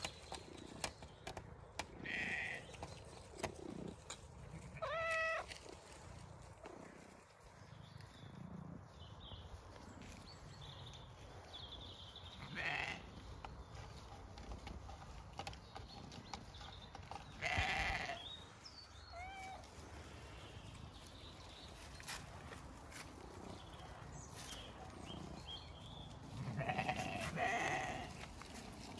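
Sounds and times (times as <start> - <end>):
rams bleating: 1.9 - 2.7, 4.6 - 5.6, 12.4 - 13.1, 17.4 - 18.2, 26.3 - 28.3.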